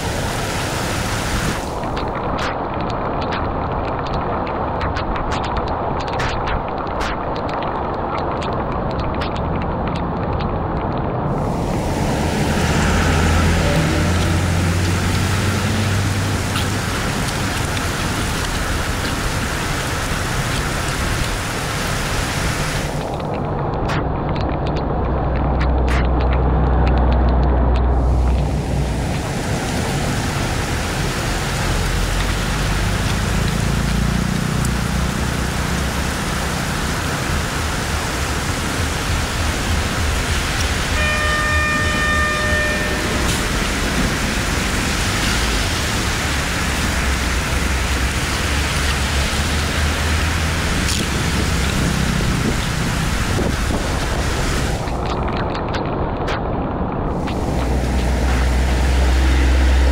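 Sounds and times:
heavy rain hissing: 0:00.0 - 0:06.4, 0:11.3 - 0:23.5, 0:27.6 - 0:55.2, 0:57.0 - 0:59.9
traffic driving through water: 0:00.0 - 0:59.9
steady pitched tone: 0:40.8 - 0:45.8.

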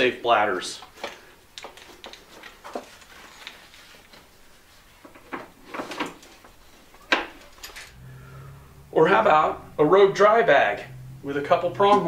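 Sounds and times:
fabric rustling: 0:02.0 - 0:08.0.

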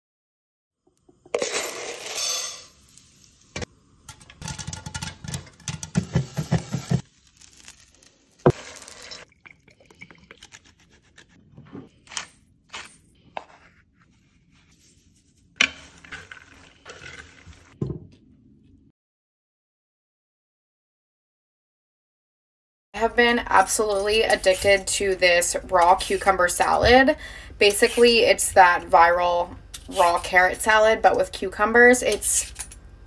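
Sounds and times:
clattering and scraping in metal pan: 0:04.1 - 0:07.0.

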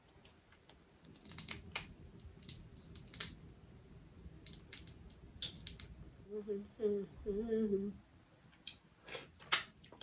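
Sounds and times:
shell cracking: 0:00.6 - 0:03.4, 0:04.4 - 0:05.9.

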